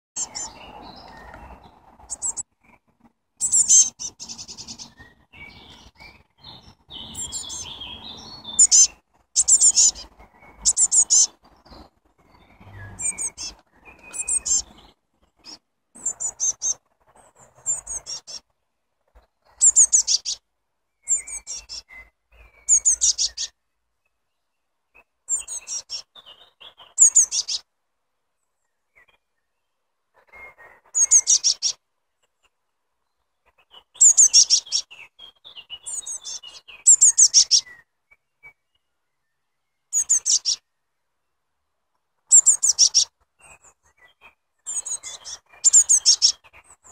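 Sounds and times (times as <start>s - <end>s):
blue tits chirping: 0.2s - 2.8s, 3.4s - 18.5s, 19.1s - 20.4s, 21.0s - 23.6s, 25.3s - 27.6s, 30.4s - 31.8s, 33.4s - 37.8s, 39.9s - 40.6s, 42.3s - 46.9s.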